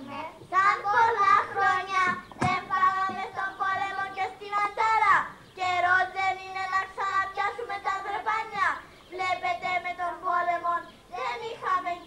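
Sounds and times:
child singing into microphone: 0:00.0 - 0:12.0
sharp knock: 0:02.1 - 0:03.3.

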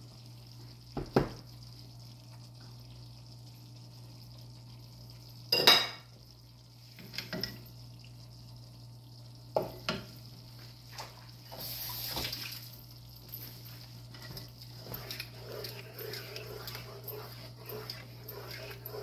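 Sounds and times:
steady low hum: 0:12.7 - 0:19.0
utensil scraping: 0:14.8 - 0:19.0.

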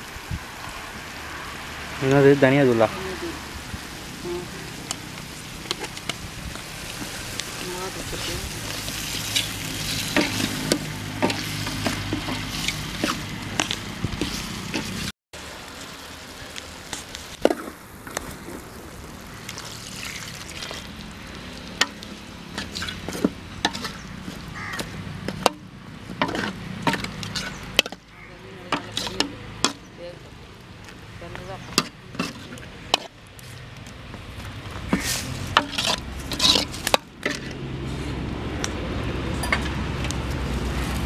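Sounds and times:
curry sizzling in a metal pot: 0:00.0 - 0:30.8, 0:31.6 - 0:33.3, 0:34.9 - 0:37.5
ladle clinking and scraping pot: 0:26.2 - 0:28.0, 0:34.9 - 0:37.6.

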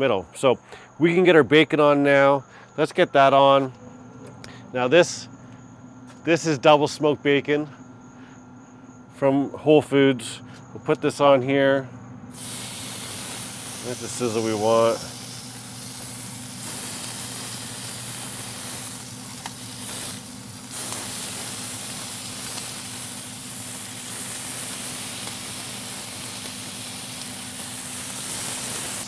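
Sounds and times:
bacon sizzling on a griddle: 0:12.3 - 0:29.0.

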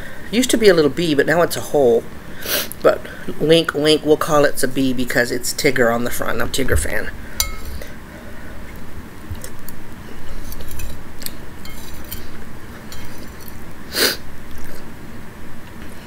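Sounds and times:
spoon clinking in a bowl: 0:07.4 - 0:07.8.

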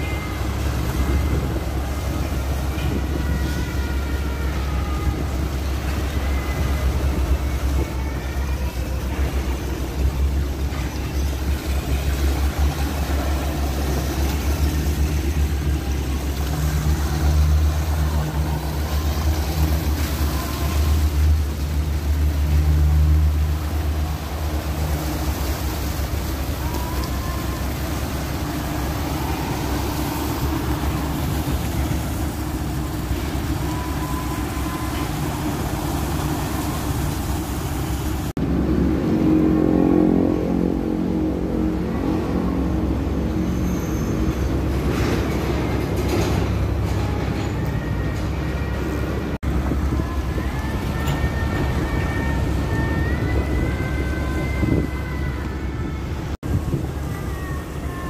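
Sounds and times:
diesel engine rumbling: 0:00.0 - 0:58.0
water gushing from chute: 0:00.0 - 0:58.0.

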